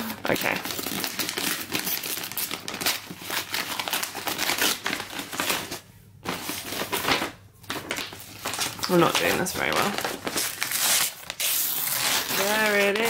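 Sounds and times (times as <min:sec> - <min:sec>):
wrapping paper ripping: 0:00.0 - 0:13.0.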